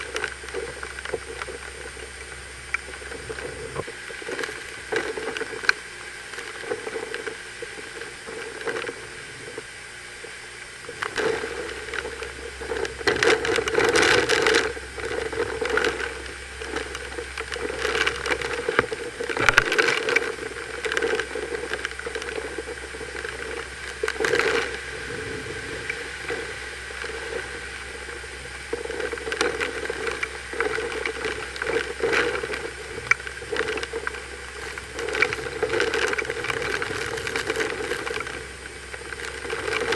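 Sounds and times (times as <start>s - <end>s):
driving rain: 0.0s - 39.9s
strong wind gusts: 24.7s - 28.7s.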